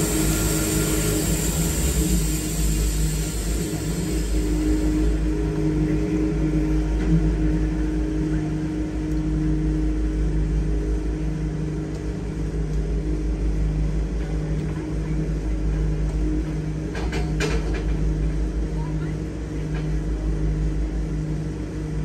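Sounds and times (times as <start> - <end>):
sawmill engine humming: 0.0 - 14.6.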